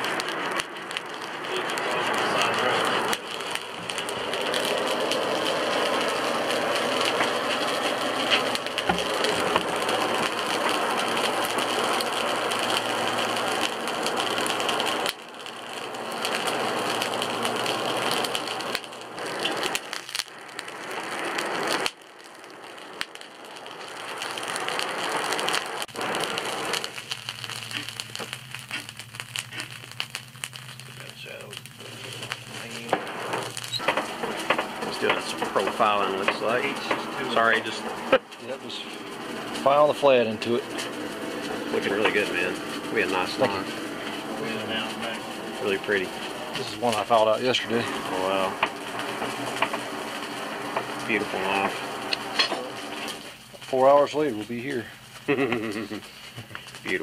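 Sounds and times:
forge fire hissing and crackling: 0:00.0 - 0:57.0.

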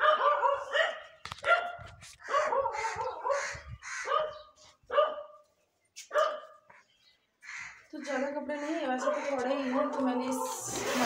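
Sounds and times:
dog yelping barks: 0:00.0 - 0:05.4, 0:06.1 - 0:06.6.

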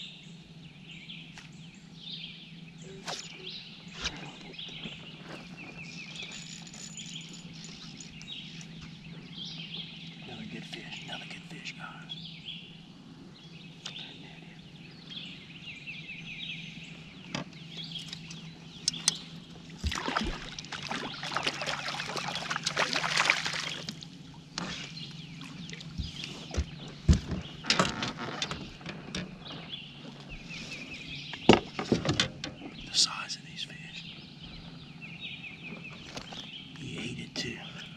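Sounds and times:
landing net knocking against boat: 0:19.8 - 0:23.9, 0:25.9 - 0:29.3
fish splashing at water surface: 0:19.8 - 0:24.1.

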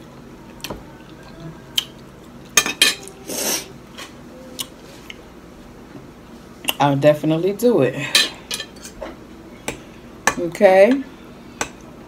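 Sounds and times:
cutlery scraping plate: 0:08.2 - 0:09.2.

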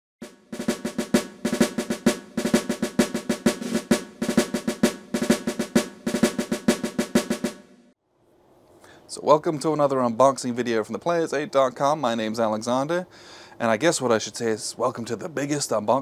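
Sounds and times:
snare drum strikes and rolls: 0:00.2 - 0:07.9.

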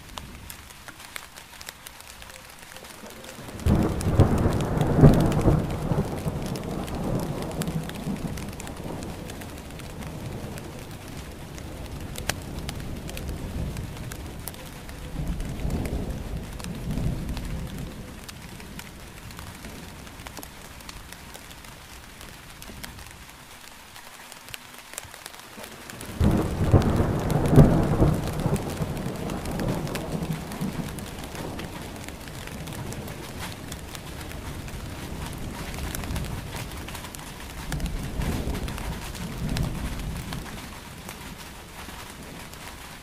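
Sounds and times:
steady rain falling: 0:00.0 - 0:43.0
rolling thunder: 0:02.9 - 0:23.1, 0:25.9 - 0:42.8.

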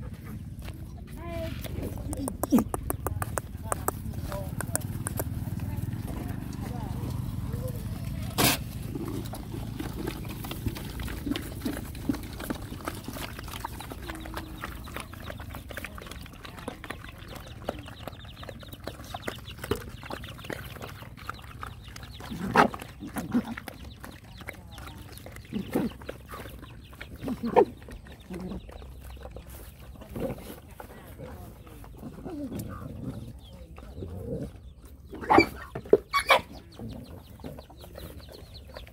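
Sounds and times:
dogs chewing and lapping: 0:00.0 - 0:38.9.

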